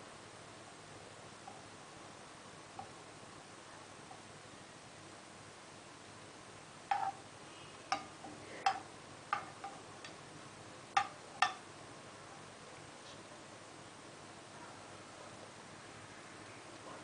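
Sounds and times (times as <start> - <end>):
metal spoon clinking on pan: 6.9 - 7.2, 7.9 - 10.2, 11.0 - 11.6.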